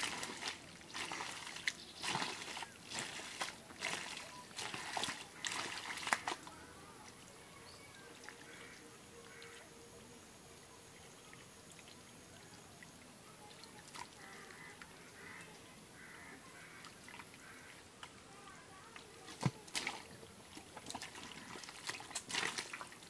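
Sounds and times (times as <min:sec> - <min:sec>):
mud squelching: 0:00.0 - 0:07.4, 0:13.4 - 0:23.0
steady low hiss: 0:06.5 - 0:19.3
distant calls: 0:07.8 - 0:09.7, 0:14.1 - 0:18.8.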